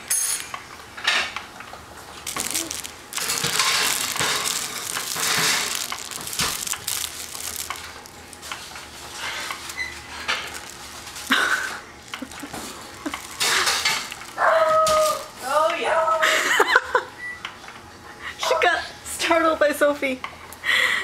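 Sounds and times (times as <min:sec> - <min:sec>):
fabric book crinkly rustling: 0:02.2 - 0:15.6.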